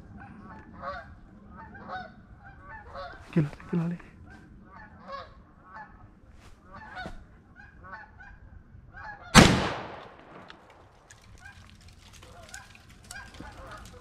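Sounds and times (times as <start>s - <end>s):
gunshot with echo: 9.4s - 10.6s.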